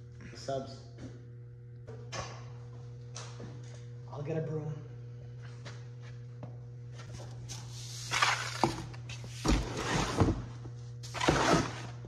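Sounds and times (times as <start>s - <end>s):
broom sweeping concrete: 7.4s - 10.2s.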